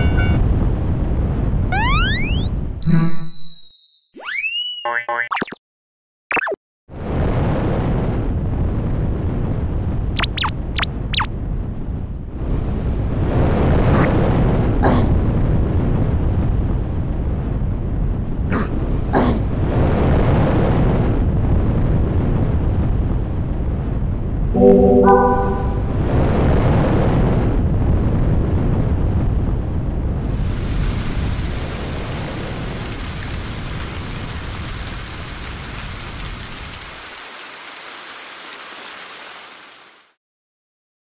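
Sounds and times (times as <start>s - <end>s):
horn-like tone rising: 0.0s - 0.5s, 24.6s - 26.2s
roar of flames and rumble: 0.4s - 1.8s, 6.9s - 24.6s, 26.0s - 36.4s.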